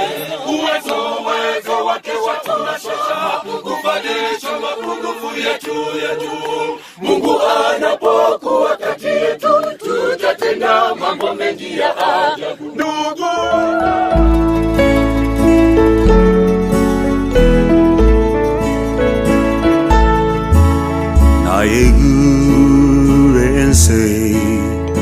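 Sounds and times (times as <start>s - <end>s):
choir singing a cappella: 0.0s - 14.2s.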